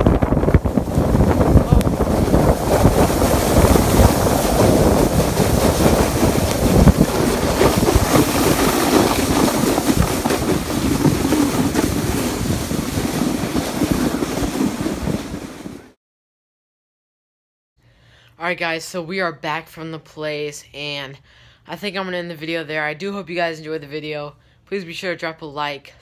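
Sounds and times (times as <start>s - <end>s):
wind buffeting microphone: 0.0s - 15.9s
sled scraping over snow: 0.0s - 16.0s.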